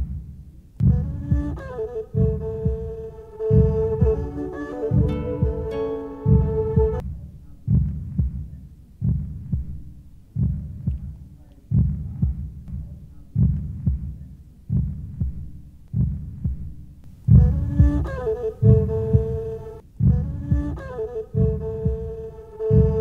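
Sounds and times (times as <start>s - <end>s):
faint low hum: 0.0s - 23.0s
heartbeat thuds: 0.0s - 23.0s
plucked-string music: 0.8s - 7.0s, 17.4s - 23.0s.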